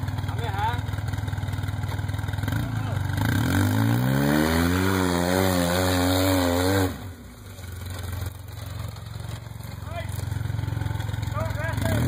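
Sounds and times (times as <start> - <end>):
engine revving under load: 2.3 - 7.3, 10.2 - 12.0.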